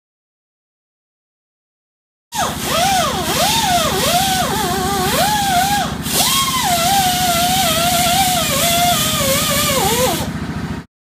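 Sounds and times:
air tool motor whining: 0:02.4 - 0:10.6.

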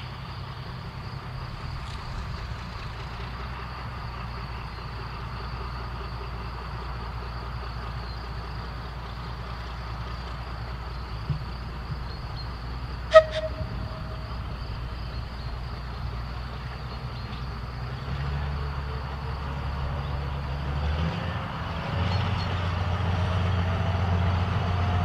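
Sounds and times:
distant diesel locomotive rumbling: 0:00.0 - 0:25.0
insects buzzing: 0:00.8 - 0:05.8, 0:10.2 - 0:20.6.

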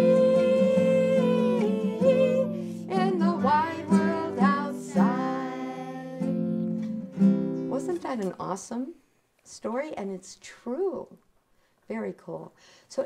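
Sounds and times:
woman singing: 0:00.0 - 0:06.6
strummed classical guitar: 0:00.0 - 0:08.3.

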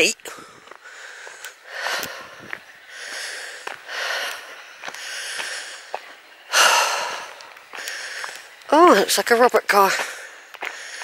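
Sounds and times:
footsteps on gravel: 0:00.0 - 0:11.0
heavy breathing: 0:00.2 - 0:08.6, 0:09.9 - 0:11.0.

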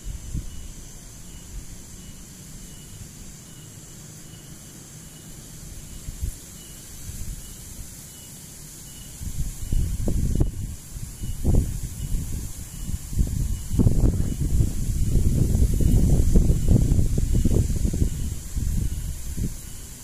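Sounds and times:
faint high chirp: 0:00.0 - 0:14.6
insects chirring: 0:00.0 - 0:20.0.

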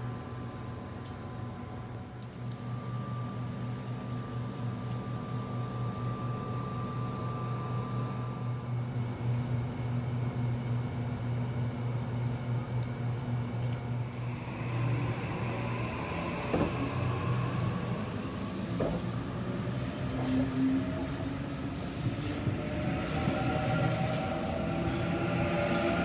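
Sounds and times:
electric train humming: 0:00.0 - 0:11.5, 0:12.6 - 0:26.0
traction motor whine rising: 0:14.1 - 0:26.0.

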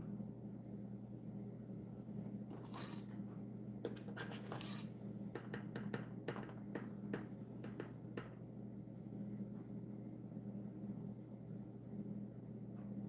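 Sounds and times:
low steady hum: 0:00.0 - 0:13.0
spoon tapping plastic jar: 0:05.4 - 0:08.3.

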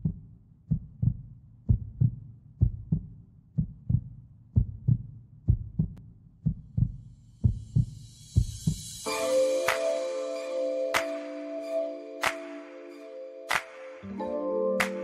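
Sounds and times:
heartbeat thumps: 0:00.0 - 0:08.8.

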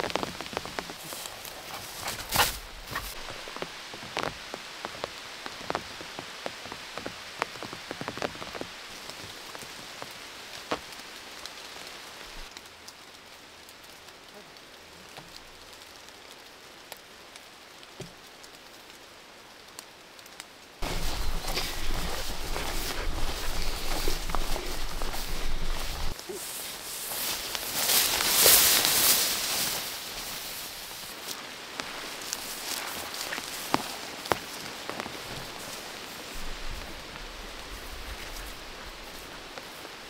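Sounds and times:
raindrops clicking on a surface: 0:00.0 - 0:01.6, 0:03.0 - 0:26.2, 0:30.9 - 0:40.0
rain falling: 0:00.0 - 0:40.0.

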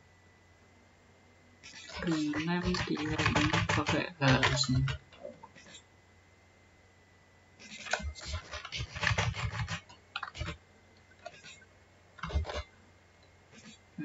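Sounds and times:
computer keyboard typing: 0:01.7 - 0:05.2, 0:07.8 - 0:10.6, 0:12.2 - 0:12.6.

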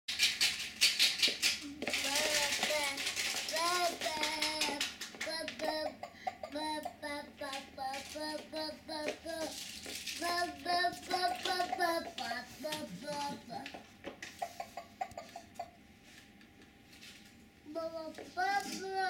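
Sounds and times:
toy playing children's song: 0:01.9 - 0:09.6, 0:10.2 - 0:13.8.

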